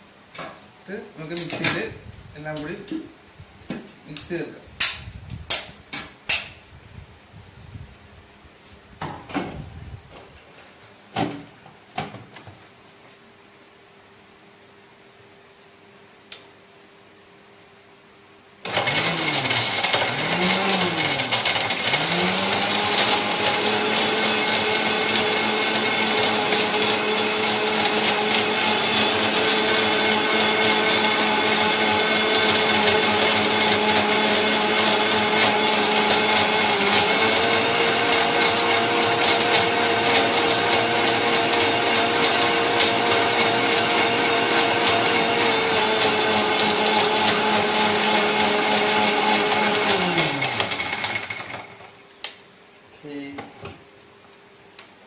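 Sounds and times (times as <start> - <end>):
mixer-grinder motor whining: 18.6 - 51.9.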